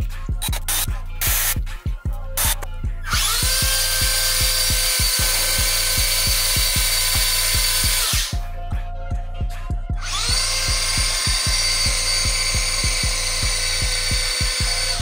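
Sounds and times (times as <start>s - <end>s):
background music with steady beat: 0.0s - 15.0s
electric motor whining: 2.4s - 8.4s, 10.0s - 15.0s.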